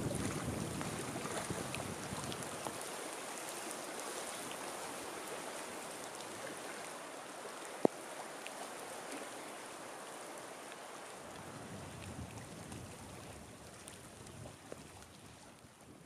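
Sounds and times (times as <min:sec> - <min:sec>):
faint ticks: 0:07.8 - 0:08.6.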